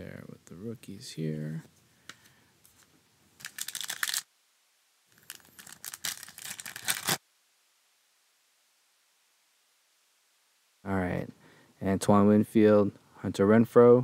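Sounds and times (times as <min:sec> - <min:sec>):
foil wrapper tearing and crinkling: 0:03.4 - 0:04.3, 0:05.1 - 0:07.2.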